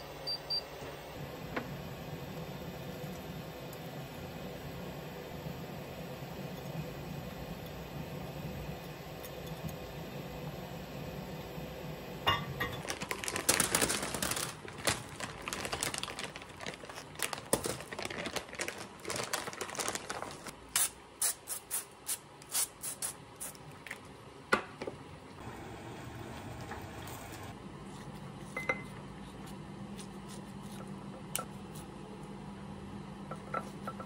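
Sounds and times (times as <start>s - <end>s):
plastic bag crinkling: 12.8s - 20.5s
spray bottle spraying: 20.8s - 23.6s.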